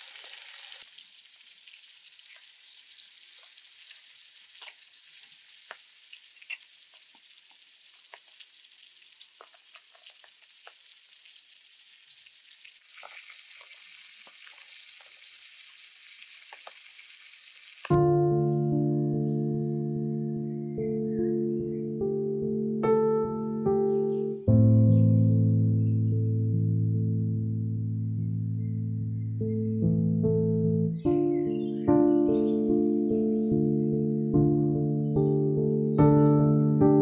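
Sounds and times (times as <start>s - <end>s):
light rain hissing: 0.0s - 18.0s
raindrops ticking: 0.9s - 16.9s, 17.8s - 18.0s.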